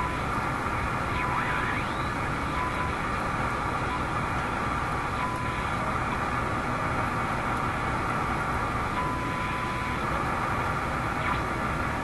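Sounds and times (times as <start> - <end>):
radio static hiss: 0.8 - 4.1, 11.1 - 11.7.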